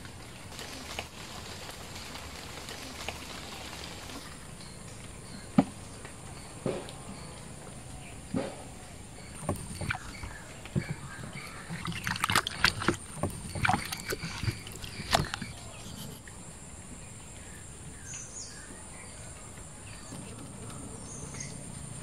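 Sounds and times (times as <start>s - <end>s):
mangoes knocking and splashing: 8.2s - 16.2s.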